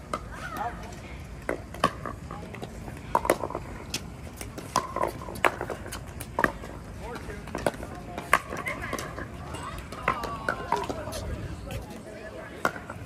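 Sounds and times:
paddles hitting plastic balls: 3.1 - 11.2.

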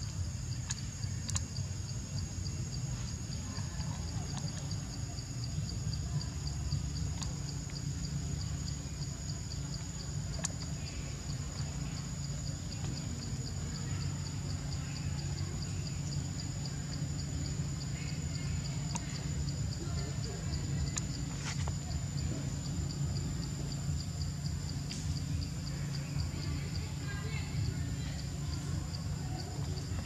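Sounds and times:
continuous high insect buzz: 0.0 - 30.0
insects chirping in fast pulses: 0.0 - 30.0
steady low rumble: 0.0 - 30.0
faint clicks: 0.6 - 1.6, 7.1 - 7.8, 10.3 - 10.8, 18.9 - 19.2.

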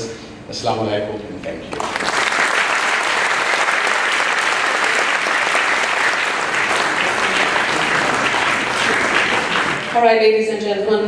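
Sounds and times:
audience applauding: 1.7 - 10.1.

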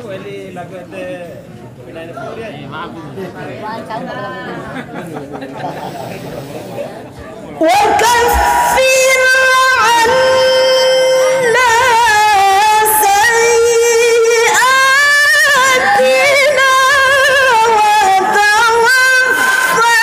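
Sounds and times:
woman chanting melodically: 7.6 - 20.0.

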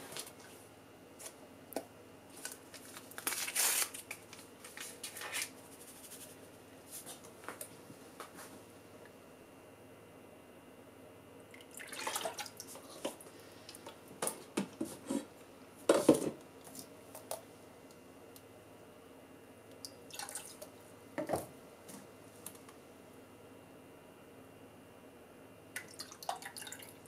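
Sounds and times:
liquid dripping and splashing: 25.8 - 26.9.

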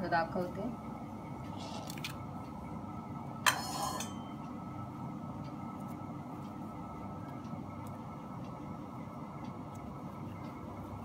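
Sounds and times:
low background hum: 0.0 - 11.0
metallic clink on steel plate: 3.5 - 4.3.

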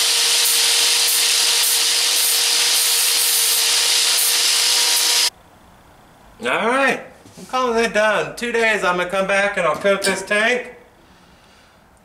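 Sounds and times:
angle grinder grinding metal: 0.0 - 5.3.

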